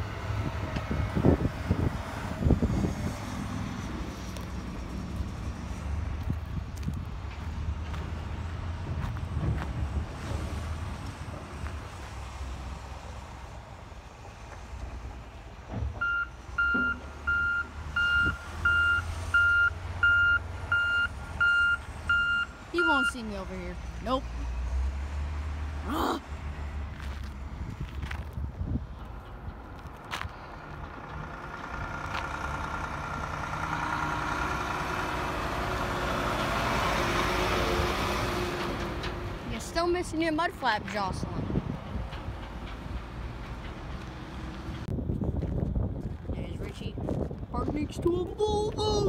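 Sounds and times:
truck diesel engine passing: 0.0 - 27.9, 28.9 - 44.9
reversing alarm beeping: 16.0 - 23.4.

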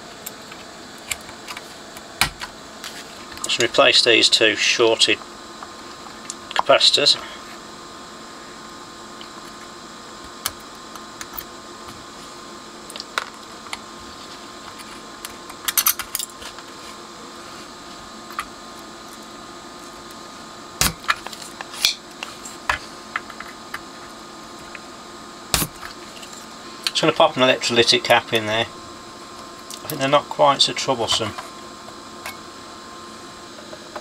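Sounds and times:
steady background hum: 0.0 - 34.0.

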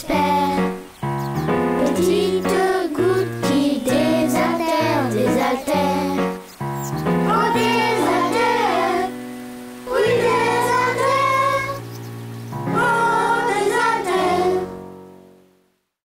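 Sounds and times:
children singing a song: 0.0 - 0.9, 1.8 - 6.4, 7.2 - 12.0, 12.6 - 14.9
instrumental backing music: 0.0 - 15.5.

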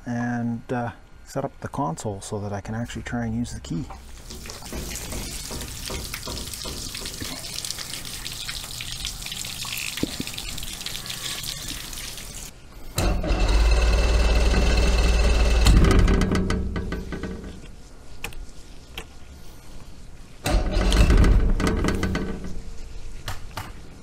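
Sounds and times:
fuel squirting and splashing: 4.0 - 12.5.

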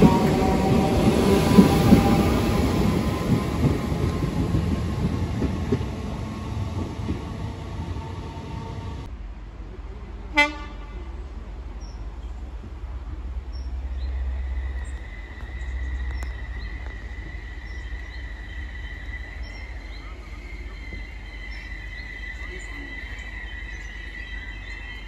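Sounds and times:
train horn toot: 0.0 - 4.5, 10.3 - 11.2
birds chirping: 0.0 - 9.1, 13.4 - 25.0
high-pitched train whine: 0.0 - 9.1, 13.7 - 25.0.

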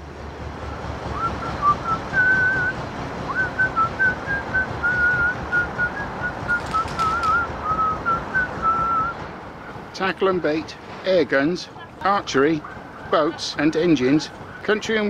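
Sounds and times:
person whistling a tune: 1.2 - 9.2.

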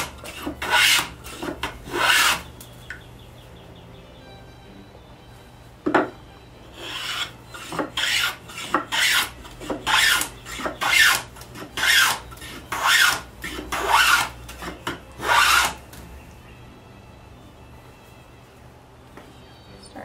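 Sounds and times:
wood scraping along plane: 0.0 - 2.5, 6.7 - 15.8.

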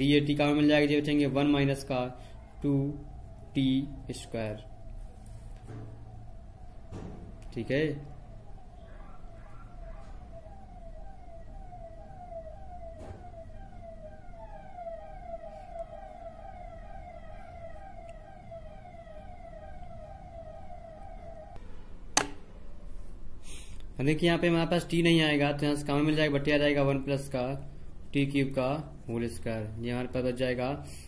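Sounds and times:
siren yelping: 0.0 - 21.6.

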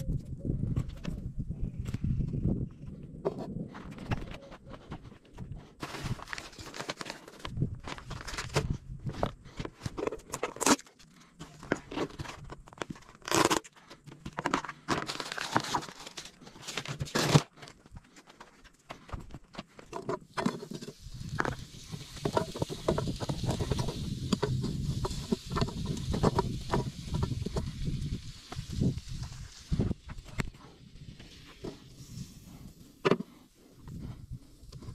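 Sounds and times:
low rumble with crackles: 0.0 - 34.9
plastic bags crinkling: 14.4 - 17.7.

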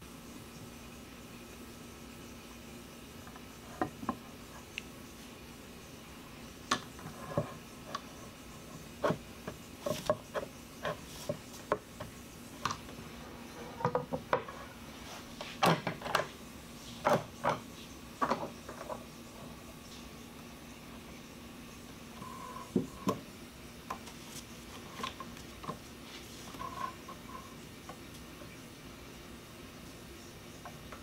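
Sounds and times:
wood rubbing on wood: 6.8 - 12.9, 23.9 - 27.6.

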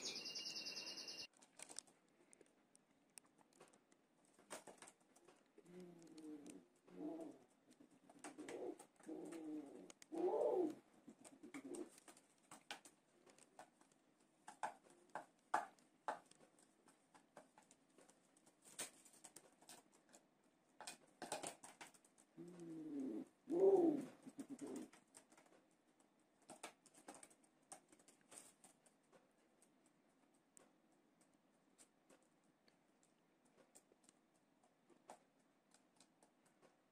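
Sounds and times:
beaks pecking plastic bowl: 4.4 - 20.2
pigeons cooing: 5.6 - 12.0, 22.4 - 25.0.

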